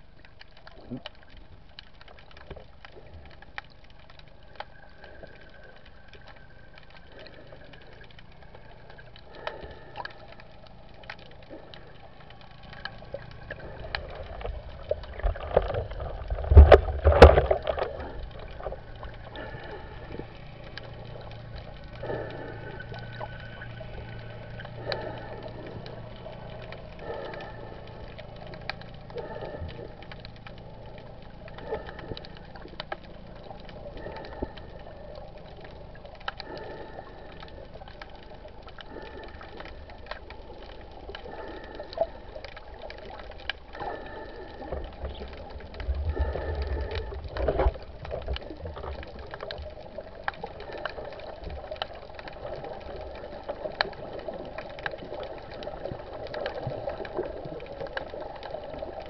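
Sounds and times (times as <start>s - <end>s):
low rumble: 0.0s - 58.0s
underwater murmur: 0.0s - 59.0s.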